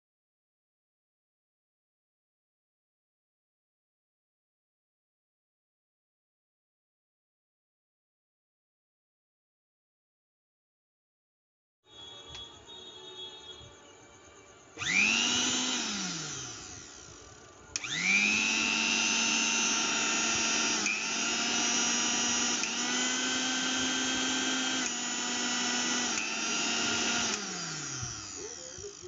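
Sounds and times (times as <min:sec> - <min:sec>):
mixer grinder motor whirring: 0:14.8 - 0:29.0.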